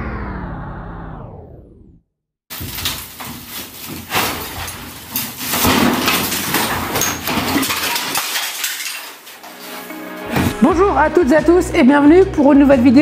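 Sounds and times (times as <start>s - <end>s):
countertop scraping and cracking: 2.5s - 9.8s.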